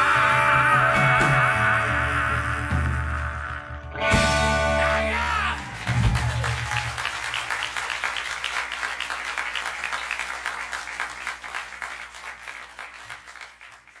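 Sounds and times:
audience applauding: 0:04.8 - 0:14.0.

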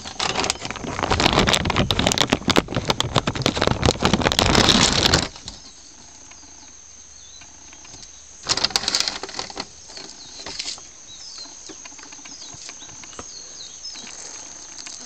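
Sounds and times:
high insect drone: 0:00.0 - 0:15.0
falling bird chirps: 0:04.0 - 0:15.0.

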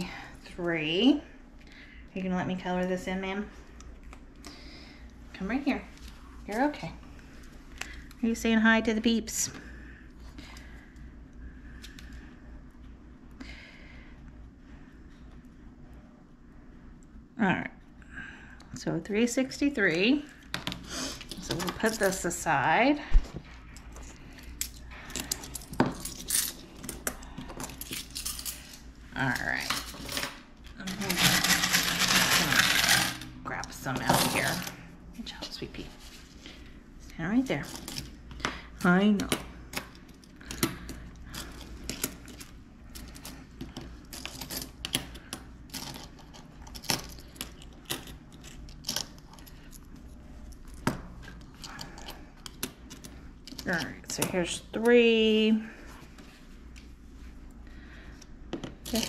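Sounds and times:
coins clinking: 0:29.7 - 0:33.3.

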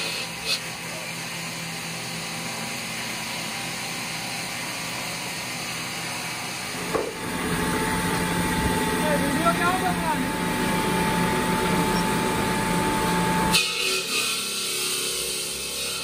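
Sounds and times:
stone-cutting saw humming: 0:00.0 - 0:16.0
single knock: 0:06.9 - 0:07.2.

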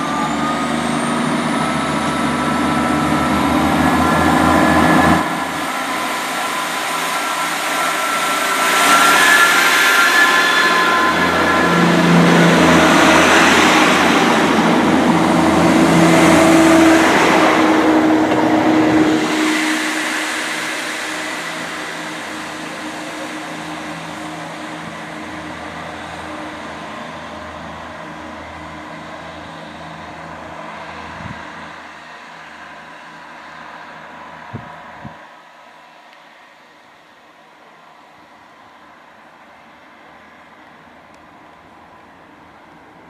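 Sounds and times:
diesel train passing close: 0:00.0 - 0:43.0
distant train engine drone: 0:00.0 - 0:43.0.

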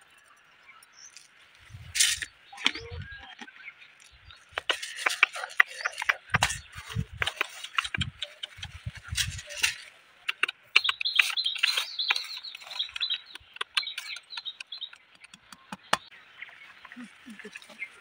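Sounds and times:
high rapid chirping: 0:04.6 - 0:09.7, 0:10.3 - 0:16.1.

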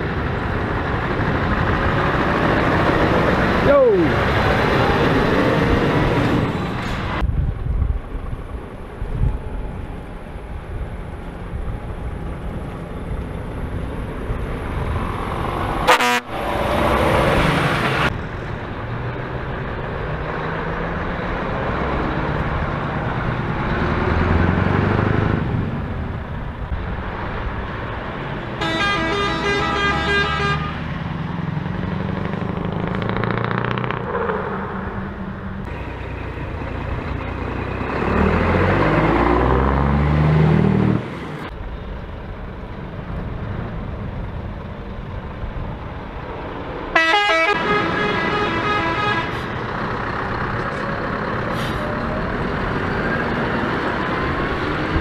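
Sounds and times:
truck diesel engines passing: 0:00.0 - 0:55.0
engine revving: 0:14.4 - 0:18.2, 0:18.9 - 0:25.8, 0:28.6 - 0:41.5
truck air horn: 0:15.8 - 0:16.5, 0:28.6 - 0:30.8, 0:46.9 - 0:49.5.

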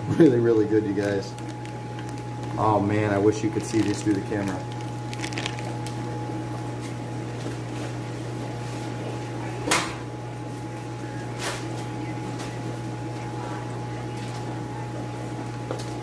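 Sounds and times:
aquarium equipment humming: 0:00.0 - 0:16.0
plastic bags rustling: 0:00.4 - 0:06.8.

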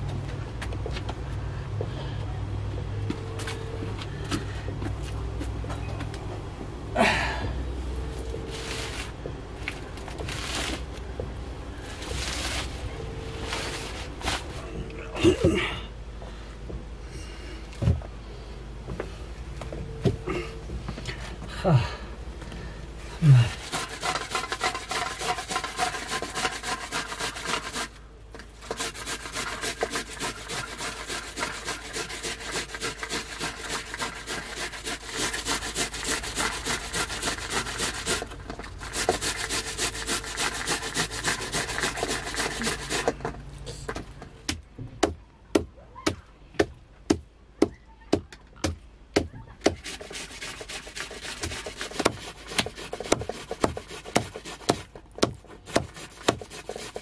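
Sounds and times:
fast rhythmic scraping strokes: 0:23.5 - 0:28.0, 0:28.6 - 0:43.2, 0:49.6 - 0:57.0.

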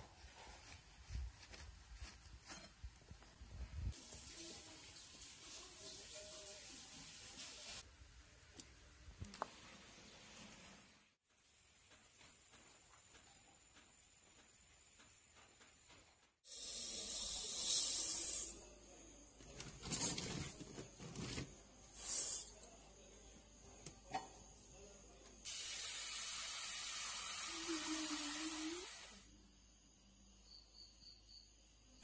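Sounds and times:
tap water spraying into a pot: 0:16.5 - 0:18.6, 0:25.4 - 0:29.2.

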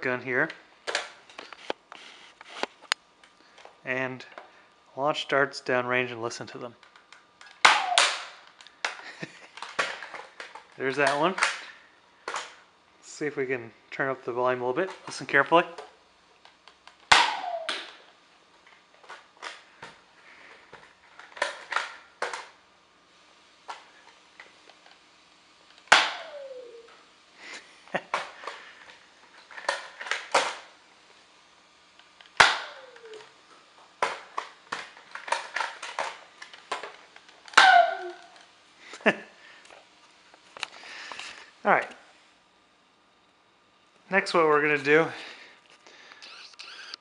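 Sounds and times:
toy dart gun pops: 0:07.4 - 0:09.0, 0:17.0 - 0:18.0, 0:25.9 - 0:26.6, 0:32.4 - 0:33.2
radar falling tone: 0:07.7 - 0:08.2, 0:17.2 - 0:17.8, 0:26.0 - 0:27.0
clicks and clatter: 0:34.0 - 0:37.6.

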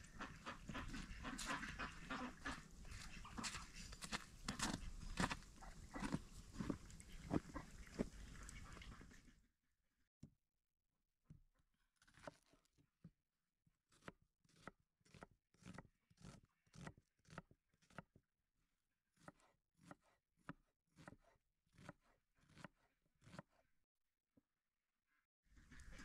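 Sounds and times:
footsteps crunching in snow: 0:02.9 - 0:08.2.

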